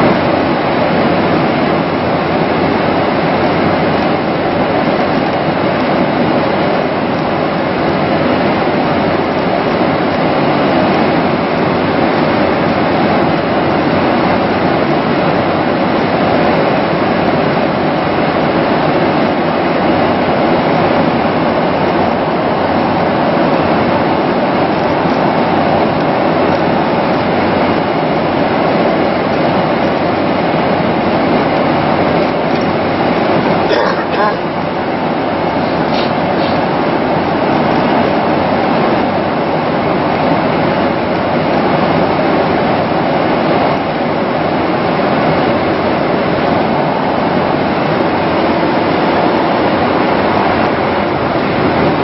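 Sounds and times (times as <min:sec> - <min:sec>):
airliner cabin noise: 0:00.0 - 0:52.0.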